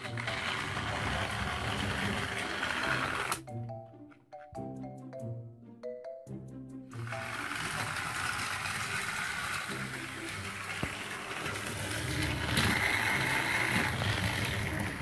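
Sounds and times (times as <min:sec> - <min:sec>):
toy train motor whirring: 0:00.0 - 0:03.5, 0:07.0 - 0:15.0.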